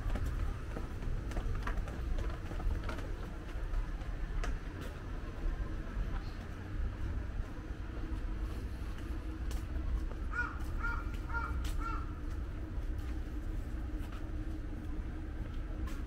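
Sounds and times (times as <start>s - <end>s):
steady low rumble: 0.0s - 16.0s
crow cawing: 10.3s - 12.1s.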